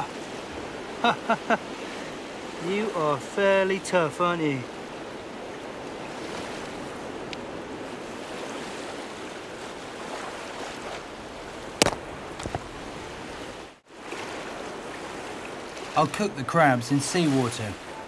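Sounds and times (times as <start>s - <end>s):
surf washing onto beach: 0.0s - 18.0s.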